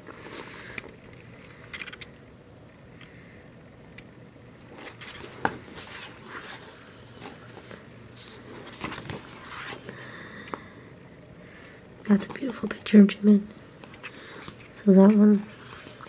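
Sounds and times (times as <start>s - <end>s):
paper rustling: 4.7s - 10.0s.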